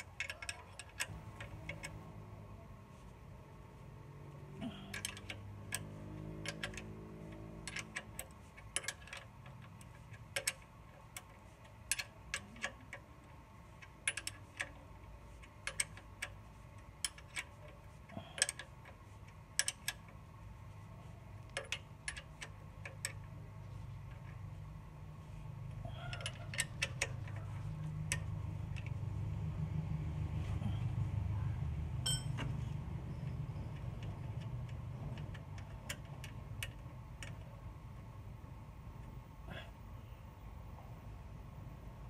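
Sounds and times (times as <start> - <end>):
ratchet wrench clicking: 4.9 - 13.2, 13.8 - 20.2.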